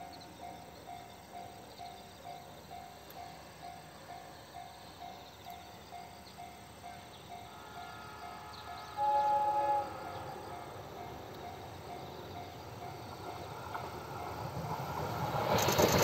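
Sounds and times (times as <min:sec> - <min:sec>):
train rumble: 0:00.0 - 0:16.0
train horn blast: 0:07.5 - 0:10.8.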